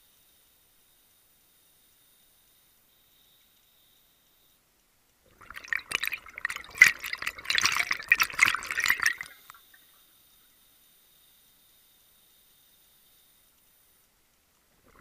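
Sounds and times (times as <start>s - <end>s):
regulator exhaust bubbles gurgling: 5.3s - 9.5s.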